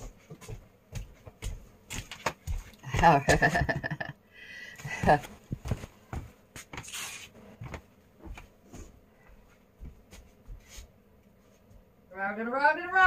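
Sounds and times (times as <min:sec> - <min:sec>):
footsteps on hard floor: 0:00.0 - 0:04.1, 0:04.8 - 0:10.9.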